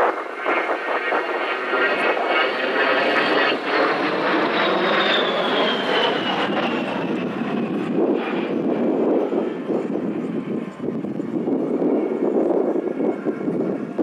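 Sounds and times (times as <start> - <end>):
jet engine whine passing by: 0.0 - 14.0.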